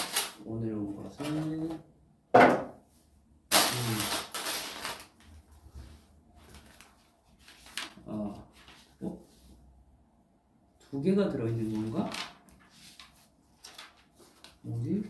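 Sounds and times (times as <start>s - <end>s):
packaging rustling: 3.5s - 5.2s, 11.6s - 14.6s.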